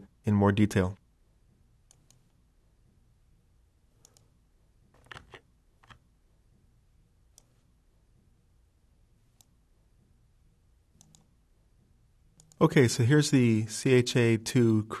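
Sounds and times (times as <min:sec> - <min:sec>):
faint computer mouse clicks: 0:01.9 - 0:02.2, 0:04.0 - 0:04.3, 0:11.0 - 0:11.3, 0:12.4 - 0:12.6.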